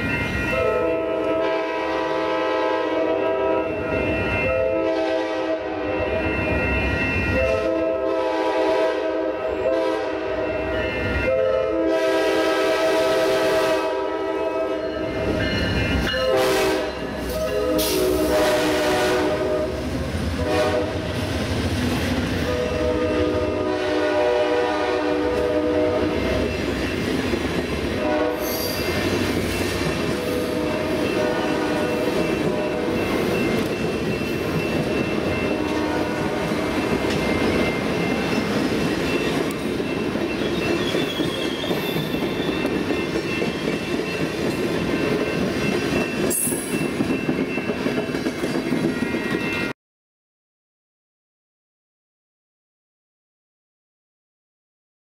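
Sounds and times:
train rumbling and clattering: 0:00.0 - 0:49.7
locomotive air horn blasts: 0:00.5 - 0:06.3, 0:07.4 - 0:14.9, 0:16.1 - 0:21.2, 0:22.4 - 0:26.5, 0:28.0 - 0:28.9, 0:30.1 - 0:33.1, 0:35.5 - 0:36.8.

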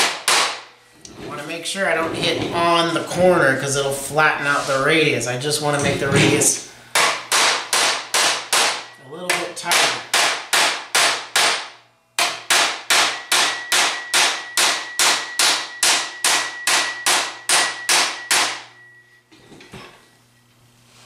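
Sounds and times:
hammer striking sheet steel: 0:00.0 - 0:00.8, 0:06.9 - 0:18.9.

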